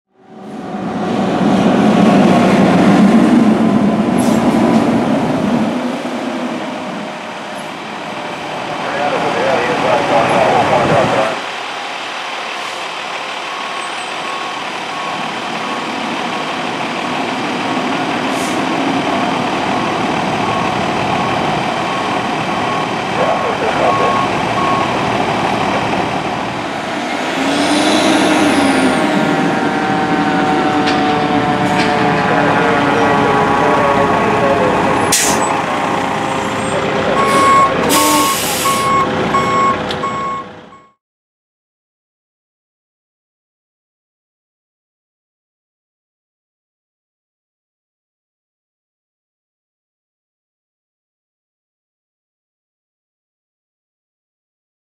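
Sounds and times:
fire truck low drone: 0.1 - 41.0
rising and falling whine: 13.3 - 40.9.

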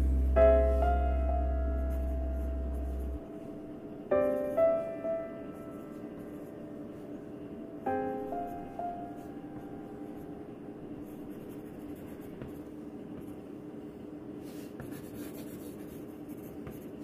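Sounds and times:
faint steady hum: 0.0 - 17.0
pencil scratching on paper: 14.4 - 17.0.

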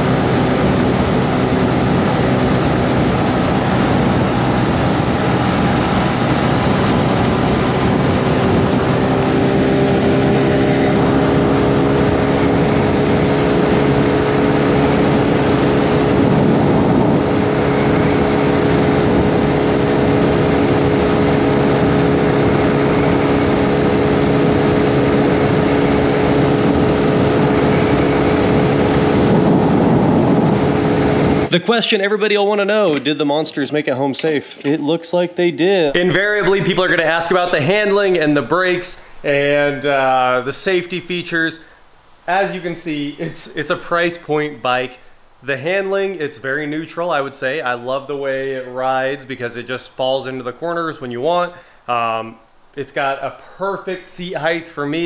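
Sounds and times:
scooter engine at full throttle: 0.0 - 31.5, 36.0 - 46.1
wind rush: 0.0 - 31.5, 36.0 - 55.0.

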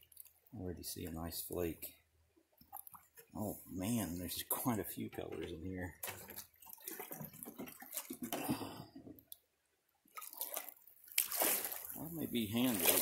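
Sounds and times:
water sloshing and splashing: 0.0 - 1.7, 2.4 - 9.4, 10.1 - 13.0.

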